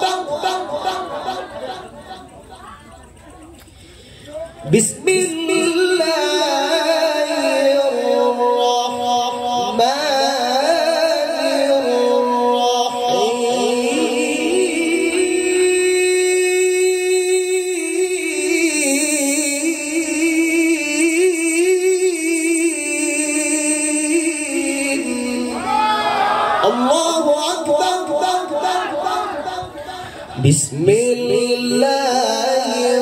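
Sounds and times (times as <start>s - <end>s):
man chanting through a microphone: 0.0s - 2.0s, 4.2s - 33.0s.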